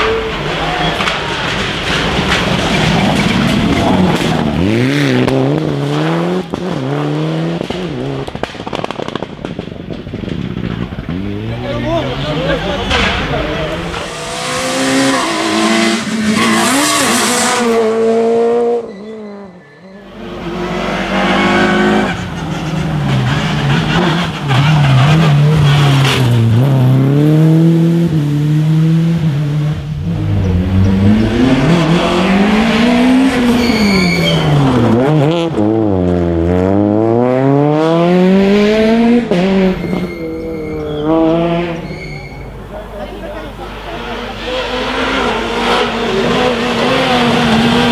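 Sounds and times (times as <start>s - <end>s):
rally car engines revving: 0.0s - 47.9s
tyre squeal: 14.1s - 17.7s, 18.7s - 20.2s, 33.3s - 34.7s, 39.6s - 42.6s.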